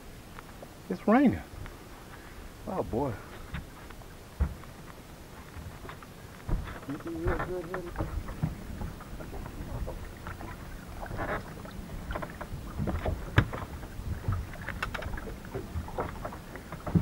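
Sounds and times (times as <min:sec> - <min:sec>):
water and wind rumble: 0:00.0 - 0:17.0
footsteps on boat deck: 0:03.2 - 0:17.0
fishing gear knocks and clicks: 0:05.8 - 0:09.6, 0:12.1 - 0:17.0.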